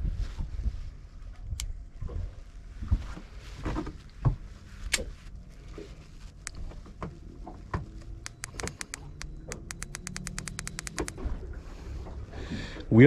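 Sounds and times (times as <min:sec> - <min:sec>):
fast sharp clicks: 0:08.2 - 0:11.2.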